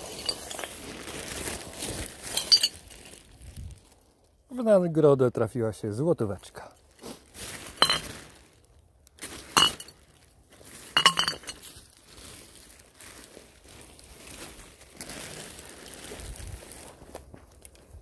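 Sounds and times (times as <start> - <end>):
glass bottles clinking: 0.0 - 0.8, 2.2 - 2.8, 7.8 - 8.2, 9.6 - 10.0, 11.0 - 11.6
plastic bag rustling: 0.0 - 4.4, 6.8 - 18.0.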